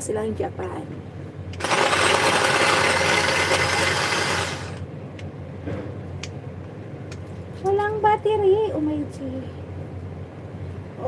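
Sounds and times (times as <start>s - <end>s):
electric chopper whirring: 1.6s - 4.8s.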